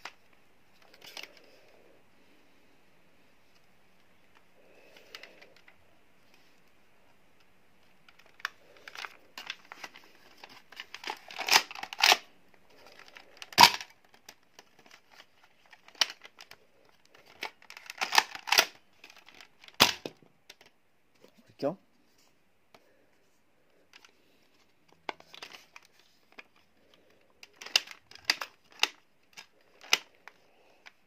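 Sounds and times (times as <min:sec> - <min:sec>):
toy blaster plastic clacks: 0:13.4 - 0:14.2, 0:17.3 - 0:20.7, 0:27.4 - 0:30.1.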